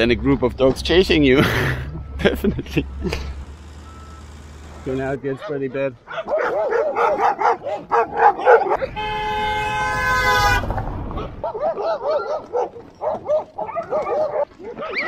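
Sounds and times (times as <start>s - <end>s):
dogs barking: 5.2s - 9.0s, 11.3s - 15.0s
vehicle horn held note: 8.8s - 10.7s.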